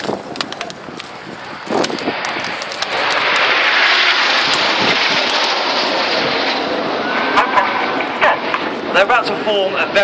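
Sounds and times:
jets flying past: 0:00.2 - 0:10.0.

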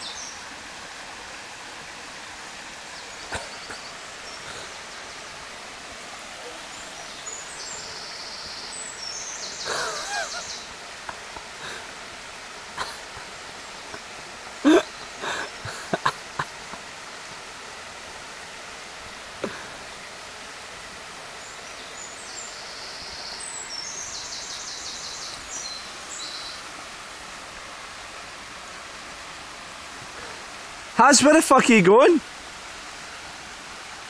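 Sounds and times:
small bird singing: 0:00.0 - 0:00.4, 0:03.0 - 0:05.4, 0:06.4 - 0:10.8, 0:21.4 - 0:26.7
stream rushing over stones: 0:00.0 - 0:34.0.

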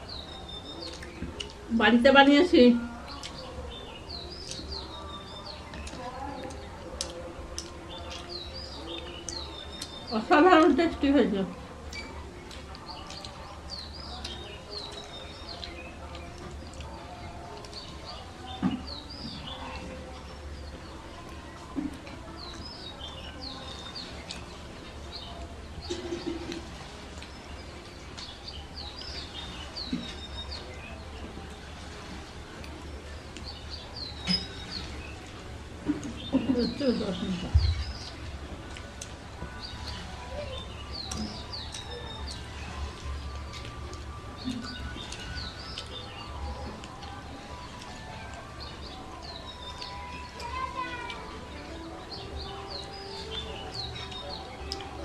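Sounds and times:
birds chirping: 0:00.0 - 0:55.0
bird chirping: 0:35.9 - 0:38.3.

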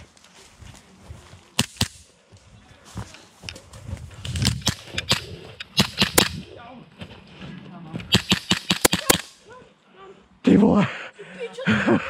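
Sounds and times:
airsoft gunfire snaps: 0:04.5 - 0:06.4, 0:08.1 - 0:09.4.

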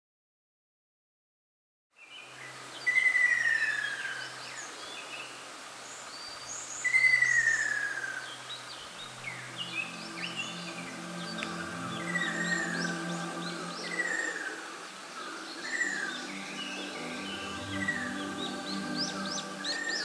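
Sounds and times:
soft music: 0:08.4 - 0:20.0.

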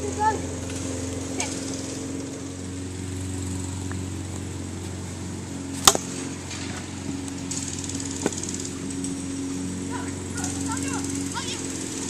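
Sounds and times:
plastic bat hitting ball: 0:05.8 - 0:06.1.

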